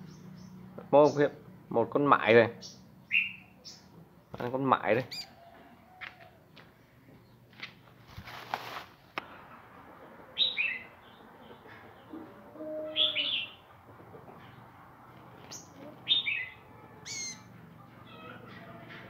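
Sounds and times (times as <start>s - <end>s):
sunbird chirping: 0.0s - 1.4s, 2.6s - 4.0s, 10.4s - 12.2s, 13.0s - 13.8s, 15.5s - 17.6s.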